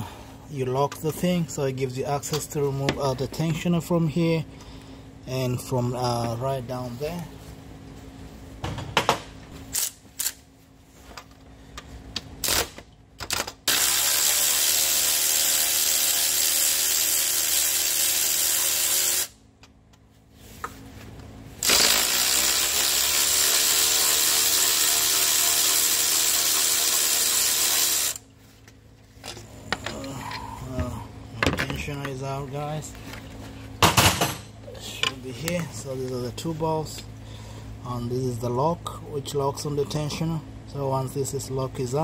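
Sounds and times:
electric ratchet whining: 13.7 - 19.4, 21.6 - 28.2.

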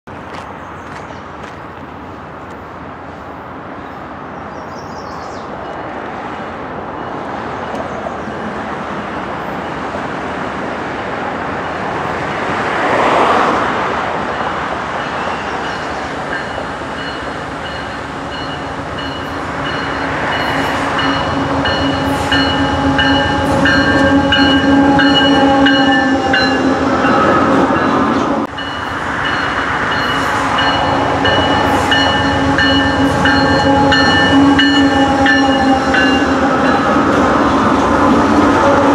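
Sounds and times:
freight train engine and wheel noise: 0.1 - 38.9
locomotive whine: 14.3 - 38.9.

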